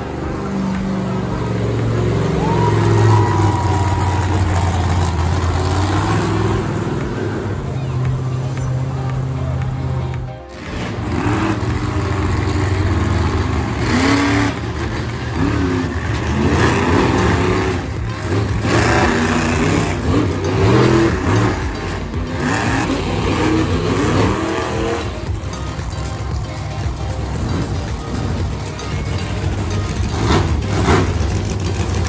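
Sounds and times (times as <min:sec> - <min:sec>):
monster truck engines revving: 0:00.0 - 0:32.0.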